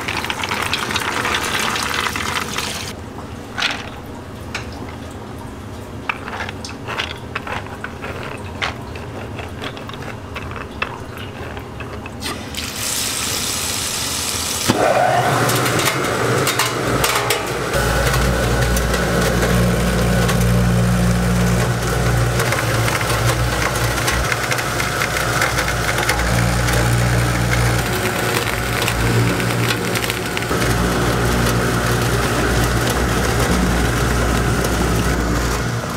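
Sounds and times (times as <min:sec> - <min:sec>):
water running into hopper: 0:00.0 - 0:35.9
electric grinder humming: 0:13.6 - 0:35.9.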